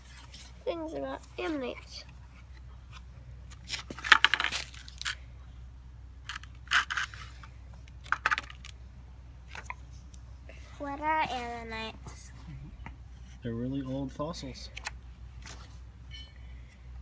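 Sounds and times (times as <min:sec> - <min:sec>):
paper pages turning and rustling: 0:14.8 - 0:15.8.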